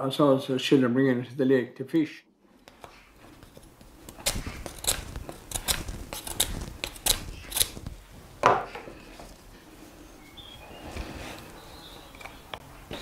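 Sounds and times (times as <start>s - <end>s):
knife shaving wood: 2.6s - 9.5s.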